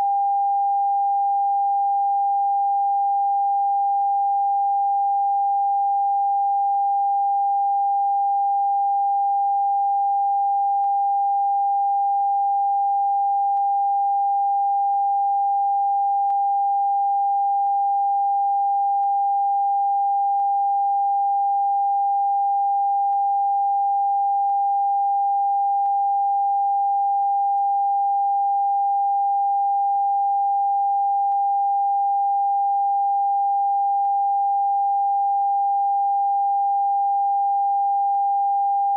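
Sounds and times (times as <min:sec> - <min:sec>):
steady sine-wave beep: 0:00.0 - 0:38.9.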